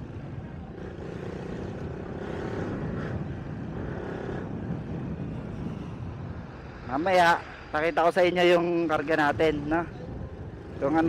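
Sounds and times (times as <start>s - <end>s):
motorcycle engine running: 0.0s - 6.5s
road and wind noise: 0.0s - 11.0s.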